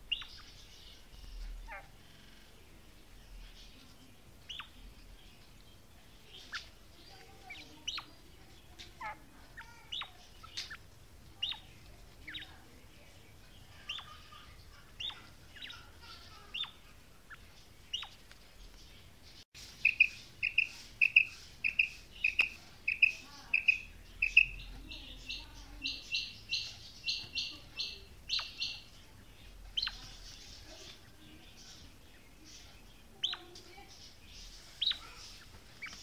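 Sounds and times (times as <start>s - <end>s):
quail calling: 19.8s - 28.9s.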